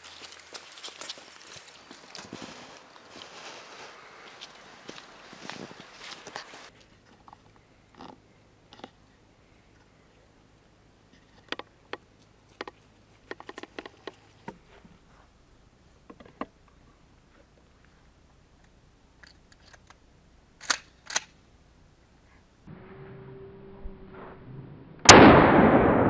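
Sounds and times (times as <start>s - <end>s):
loud shotgun snaps: 20.6s - 21.3s
shotgun metallic clicks: 20.6s - 21.4s.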